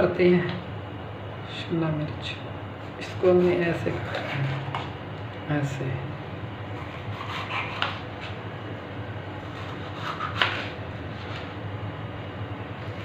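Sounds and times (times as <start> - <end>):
knife scraping pepper: 3.1 - 4.9, 6.7 - 8.4, 9.4 - 11.5.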